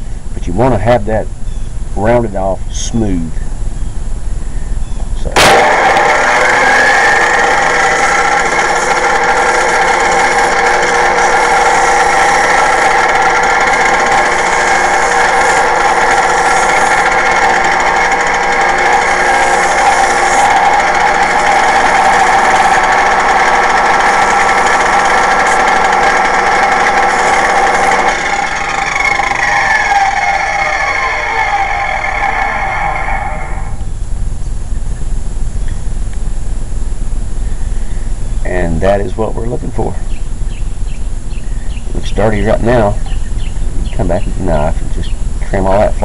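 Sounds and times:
abrasive wheel whining: 3.9 - 46.0.

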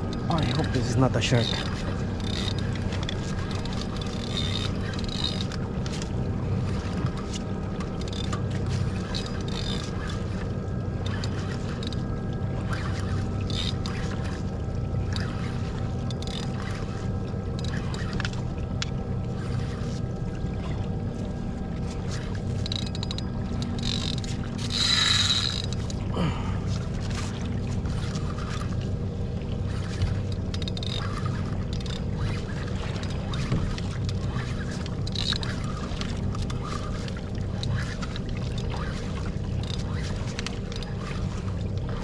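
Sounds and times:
electric trolling motor humming: 0.0 - 42.0
water and wind noise: 0.0 - 42.0.

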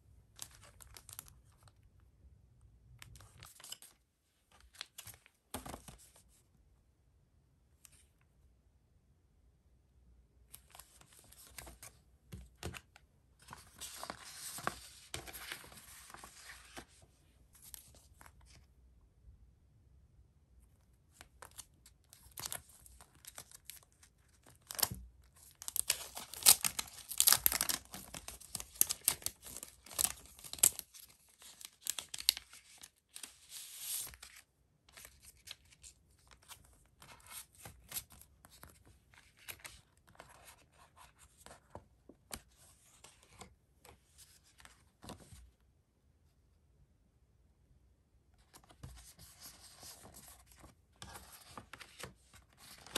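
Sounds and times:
paper envelopes rustling: 13.4 - 17.0, 21.5 - 41.8, 48.6 - 52.9
plastic packaging crinkling: 24.6 - 30.9.

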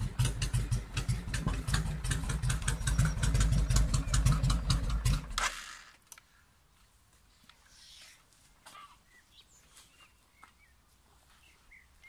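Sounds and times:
motorcycle engine idling: 0.0 - 5.4.

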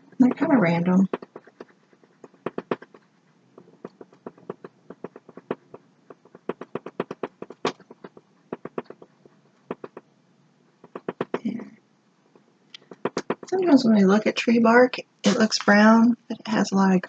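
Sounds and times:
paintbrush tapping and scratching canvas: 0.0 - 10.1, 10.8 - 11.6, 12.3 - 13.7.

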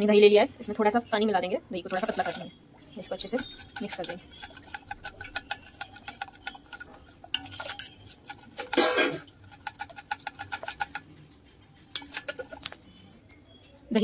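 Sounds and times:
spoon clinking in steel bowl: 3.3 - 11.2, 11.9 - 12.7.

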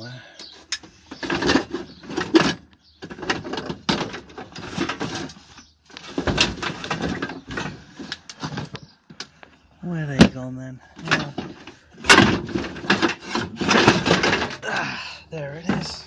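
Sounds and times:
tools and metal gear clattering: 11.0 - 14.6.

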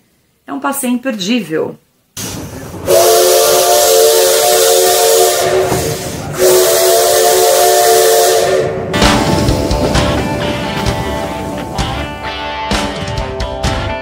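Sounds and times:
steam hissing: 2.2 - 12.3
steam locomotive whistle: 2.8 - 12.0.

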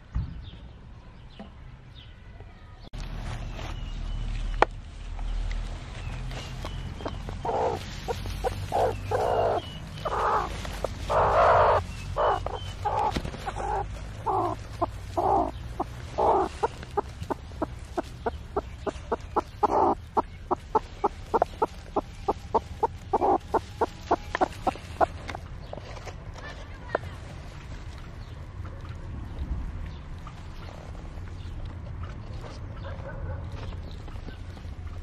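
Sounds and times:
hen clucking: 6.6 - 25.7.

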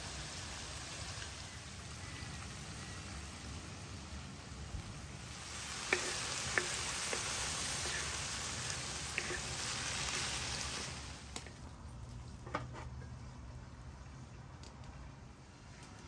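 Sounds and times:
chicken sizzling in hot oil: 0.0 - 12.9.

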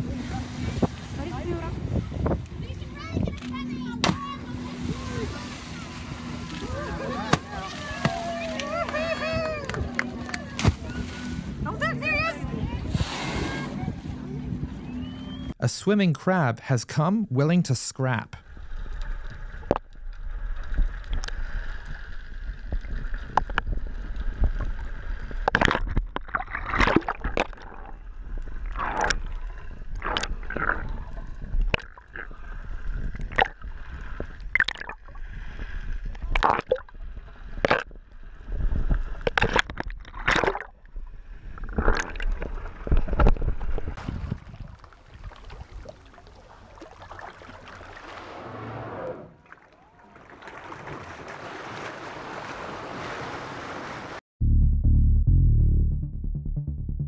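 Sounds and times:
knocks and splashes: 3.3 - 11.9, 18.8 - 32.3, 32.9 - 35.2, 36.0 - 41.0, 41.6 - 48.7, 49.4 - 54.2
water gurgling underwater: 19.0 - 35.2, 36.0 - 37.9.

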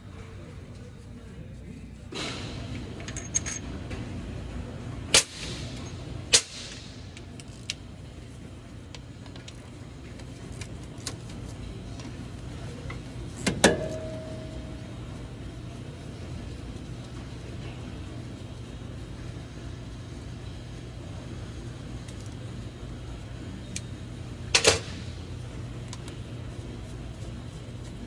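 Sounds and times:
low hum: 0.0 - 28.0
metal tools clinking: 3.0 - 3.6
loud ringing metal clank: 13.6 - 14.6.

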